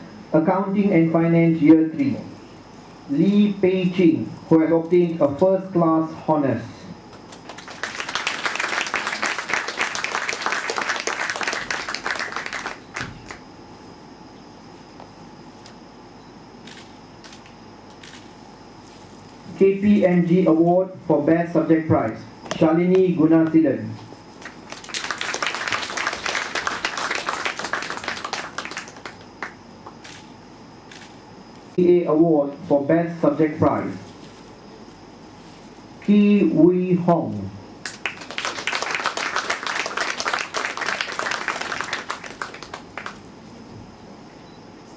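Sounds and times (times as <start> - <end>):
audience applauding: 7.4 - 13.4, 24.4 - 29.6, 37.8 - 43.3.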